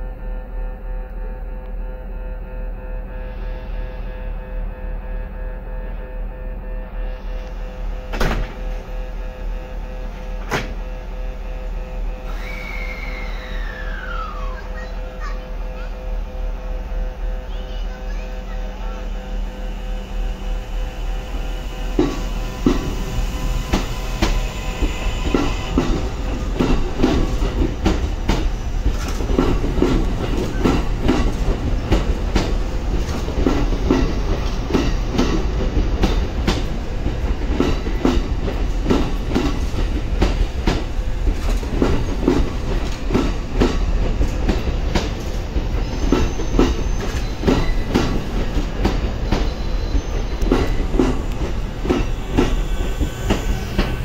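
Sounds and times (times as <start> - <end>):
train wheels clattering over rail joints: 21.9 - 54.0.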